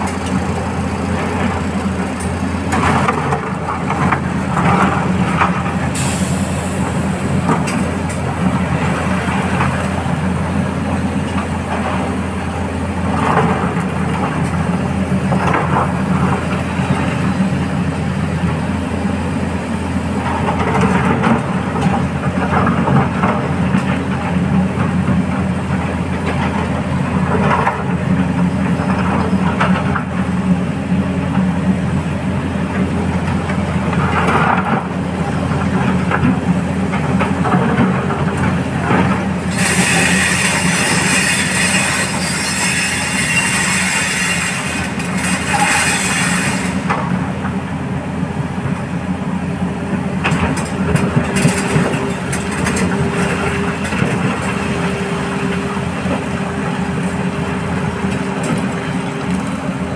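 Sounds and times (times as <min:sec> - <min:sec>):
heavy diesel truck engines: 0:00.0 - 0:59.9
hiss: 0:05.9 - 0:07.0, 0:39.5 - 0:46.8.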